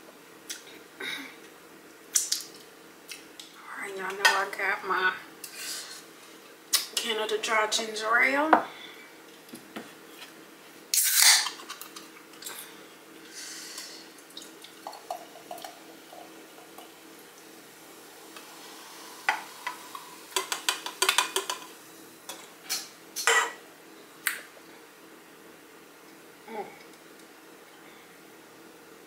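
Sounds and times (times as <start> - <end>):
gas hissing from can: 10.9 - 11.5, 18.2 - 21.7
drink pouring into glass: 14.2 - 17.0.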